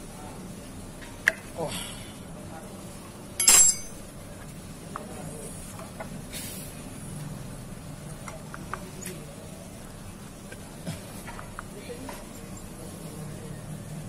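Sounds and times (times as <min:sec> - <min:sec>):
low background hum: 0:00.0 - 0:14.0
brief hiss: 0:06.3 - 0:06.8.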